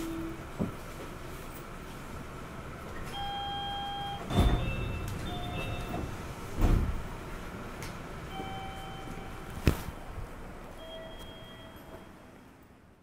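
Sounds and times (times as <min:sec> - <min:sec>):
electronic door chime: 0:03.1 - 0:06.0, 0:08.3 - 0:10.2, 0:10.8 - 0:12.3
heavy door thud: 0:04.2 - 0:07.2.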